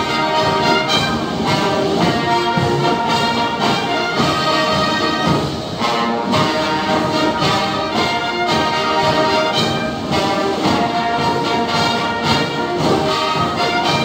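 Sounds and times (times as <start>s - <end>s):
brass marching band playing: 0.0s - 14.0s
drum beating: 0.0s - 14.0s.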